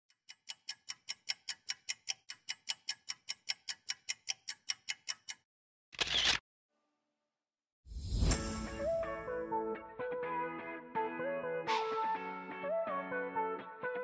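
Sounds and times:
clock-like ticking: 0:00.1 - 0:05.5.

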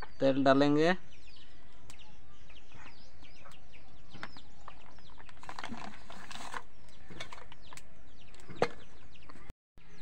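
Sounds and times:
small birds chirping: 0:00.0 - 0:10.0
rustling crackle: 0:04.6 - 0:07.8.

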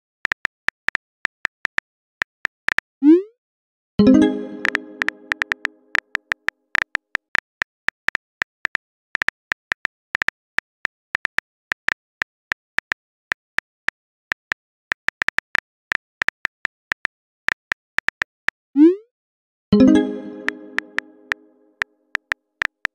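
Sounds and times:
message chime: 0:04.0 - 0:05.8, 0:19.8 - 0:21.6.

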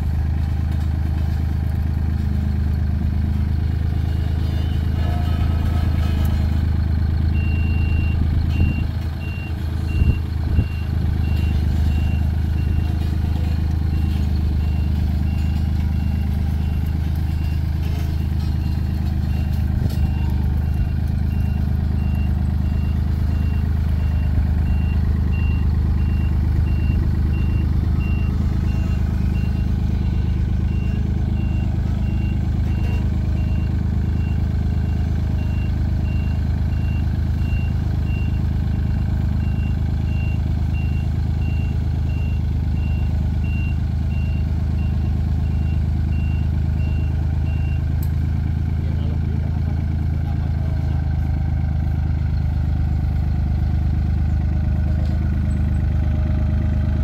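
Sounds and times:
diesel roller engine droning: 0:00.0 - 0:57.0
reversing alarm beeps: 0:07.4 - 0:13.0, 0:18.4 - 0:47.9.

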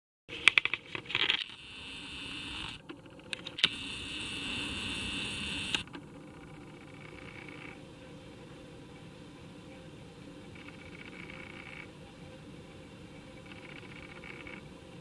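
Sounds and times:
camera zoom motor whirring: 0:01.4 - 0:02.8, 0:03.6 - 0:07.8
sharp click: 0:05.6 - 0:06.0.

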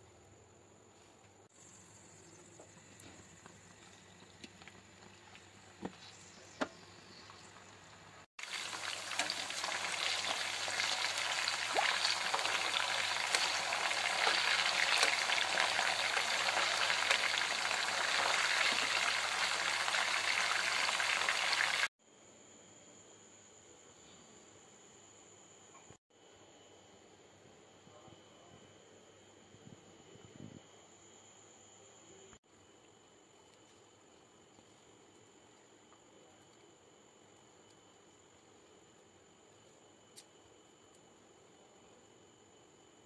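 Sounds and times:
chicken sizzling in frying oil: 0:07.2 - 0:21.9.

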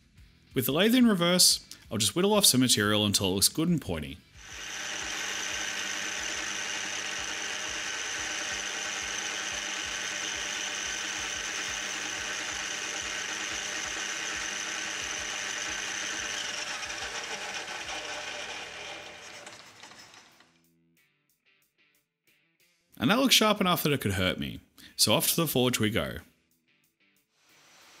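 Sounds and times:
metal lathe whining: 0:04.4 - 0:20.5.

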